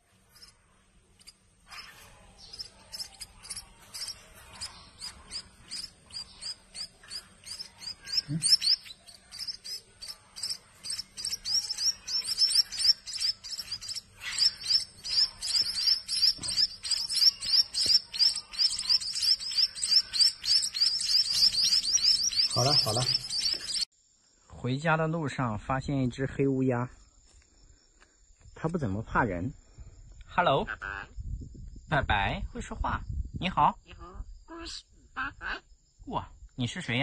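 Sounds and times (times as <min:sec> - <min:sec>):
nestling birds begging chirps: 0:00.3 - 0:23.9.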